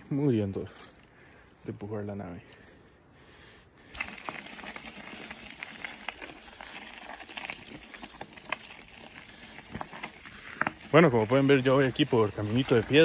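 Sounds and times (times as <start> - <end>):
bike tyres crunching gravel: 3.4 - 13.0.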